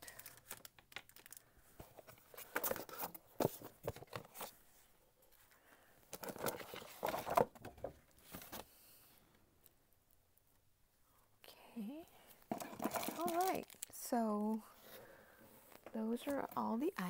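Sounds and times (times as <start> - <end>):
paper and plastic rustling: 0.0 - 4.8, 6.1 - 8.7, 12.5 - 14.0.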